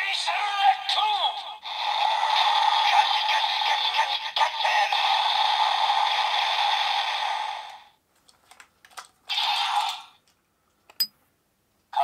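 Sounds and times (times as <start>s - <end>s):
toy speaker electronic sound effect: 0.0s - 6.6s.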